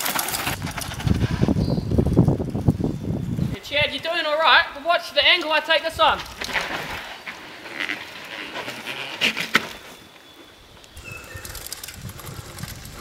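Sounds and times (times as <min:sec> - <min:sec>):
bike tyres skidding on dirt: 0:00.0 - 0:03.5, 0:05.6 - 0:13.0
wind on microphone: 0:00.5 - 0:04.1, 0:11.0 - 0:13.0
bird chirps: 0:09.7 - 0:11.8.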